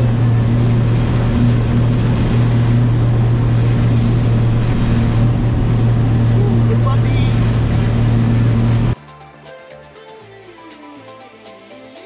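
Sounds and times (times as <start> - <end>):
electric motor and propeller hum: 0.0 - 9.0
rushing noise: 0.0 - 9.0.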